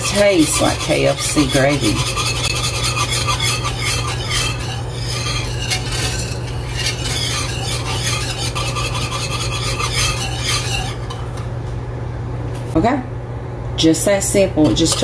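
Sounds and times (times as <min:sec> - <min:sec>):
whisk scraping a skillet: 0:00.0 - 0:11.5
steady low hum: 0:00.0 - 0:15.0.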